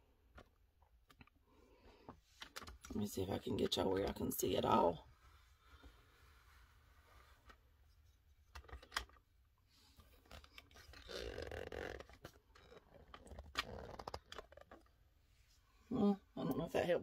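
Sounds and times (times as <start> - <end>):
camera handling clicks and rustles: 8.4 - 9.2.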